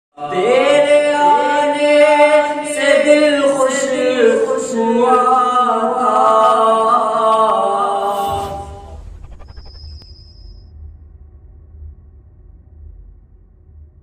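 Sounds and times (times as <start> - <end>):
man singing unaccompanied: 0.2 - 8.1.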